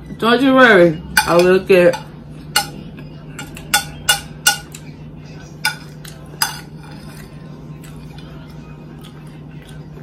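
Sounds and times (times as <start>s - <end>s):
metal spoon clinking on plate: 1.1s - 4.9s, 5.6s - 7.4s.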